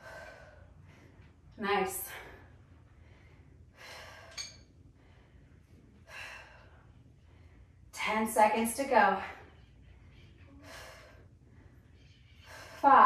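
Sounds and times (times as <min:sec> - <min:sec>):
woman breathing hard: 0:00.0 - 0:07.9, 0:10.5 - 0:12.9.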